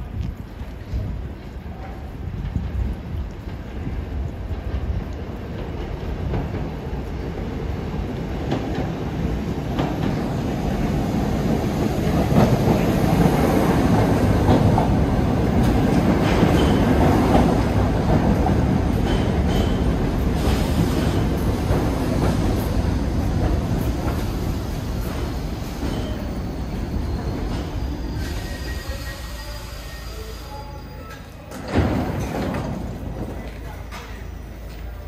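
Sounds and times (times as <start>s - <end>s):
subway train wheels clattering: 0.8s - 35.0s
high wheel squeals: 25.6s - 31.4s.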